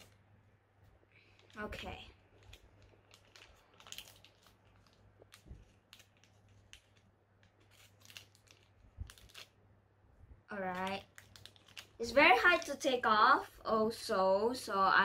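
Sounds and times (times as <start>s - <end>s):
plastic baggie crinkling: 1.1s - 9.6s, 10.5s - 13.0s.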